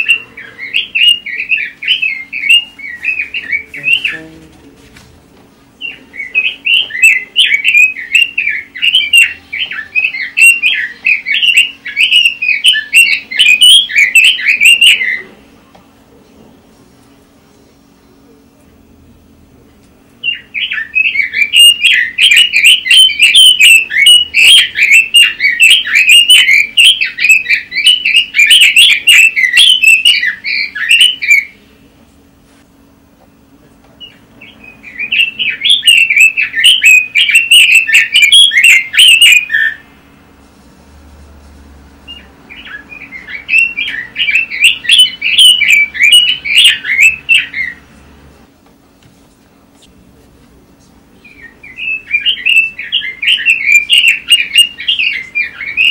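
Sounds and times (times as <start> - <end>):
bird warbling and chattering: 0.0 - 4.4, 5.8 - 15.5, 20.2 - 31.6, 34.0 - 39.9, 42.0 - 48.0, 51.1 - 55.9
faint low hum: 0.0 - 55.9.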